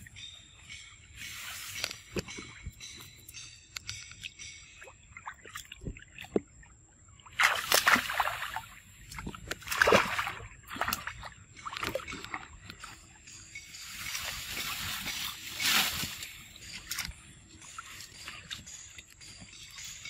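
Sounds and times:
water splashing: 7.2s - 13.0s
water dripping: 7.3s - 20.0s.

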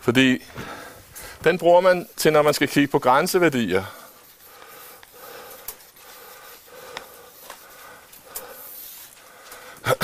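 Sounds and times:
chalk scratching on blackboard: 8.6s - 9.2s.

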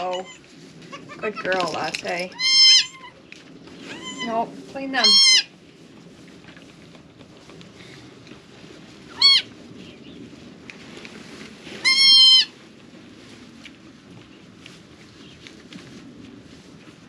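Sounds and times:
goat kid bleating: 0.0s - 1.5s, 2.3s - 3.2s, 3.9s - 5.5s, 9.1s - 9.5s, 11.8s - 12.5s.

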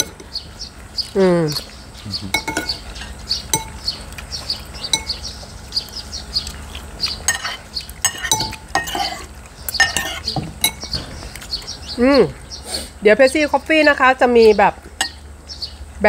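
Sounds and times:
spoons clinking on ceramic bowls: 0.0s - 0.3s, 2.3s - 3.8s, 4.9s - 5.2s, 7.2s - 11.0s.

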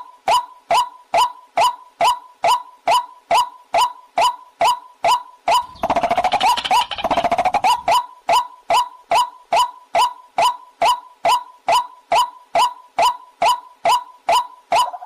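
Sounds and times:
recorded bird calls: 5.5s - 8.1s.

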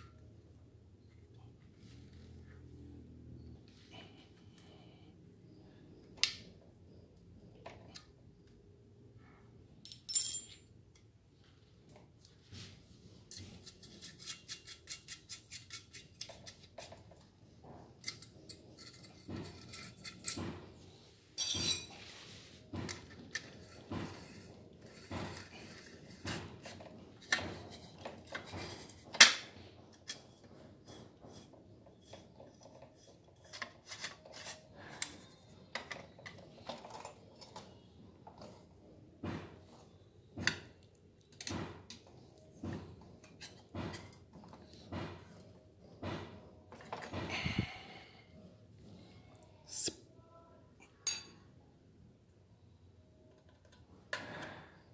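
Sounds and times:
metal tools clicking and rattling: 9.8s - 10.7s, 13.3s - 17.3s, 18.0s - 20.8s, 21.4s - 22.0s.

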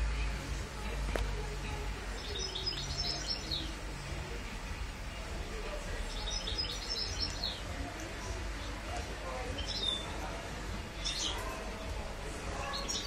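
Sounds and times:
steady low hum: 0.0s - 13.0s
bird chirping: 2.1s - 3.8s, 6.1s - 7.7s, 9.5s - 10.2s.

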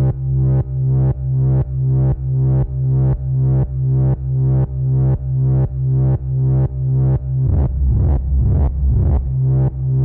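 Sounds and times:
synthesizer repeating low note: 6.9s - 10.0s.

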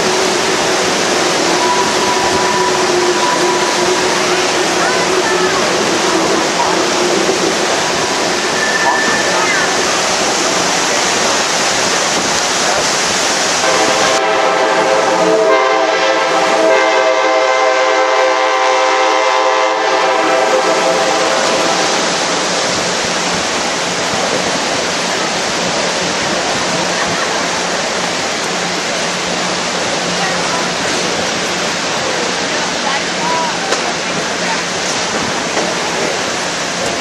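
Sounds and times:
river rapids rushing: 0.0s - 37.0s
locomotive horn: 1.5s - 5.8s, 13.6s - 22.1s.

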